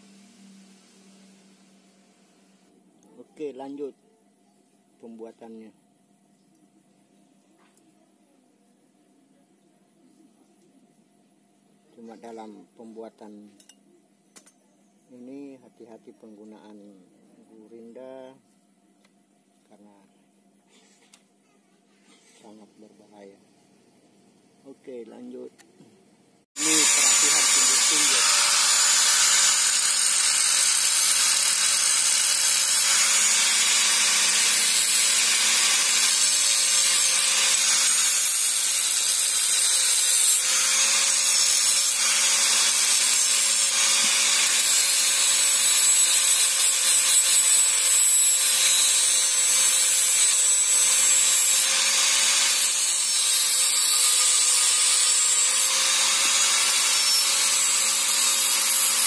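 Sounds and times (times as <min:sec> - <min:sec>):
angle grinder cutting metal: 0:26.6 - 0:59.0.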